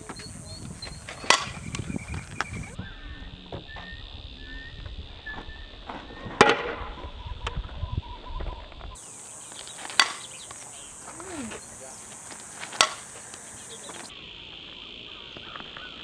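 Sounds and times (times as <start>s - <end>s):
bat cracking ball: 0.8s - 2.7s, 9.0s - 14.1s.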